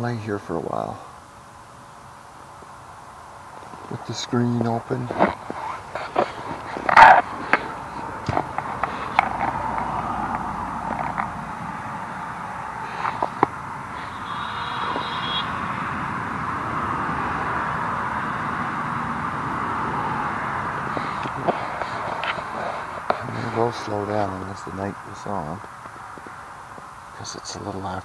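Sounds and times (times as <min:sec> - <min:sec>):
road traffic hissing past: 0:00.6 - 0:28.0
handling knocks and clicks: 0:05.1 - 0:11.3.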